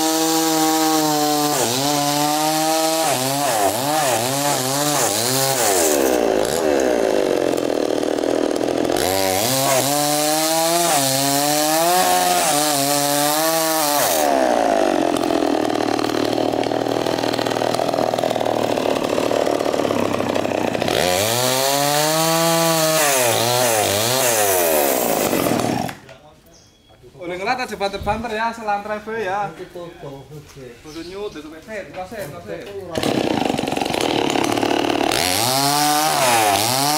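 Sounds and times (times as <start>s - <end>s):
chainsaw revving: 0.0s - 26.0s, 32.9s - 36.9s.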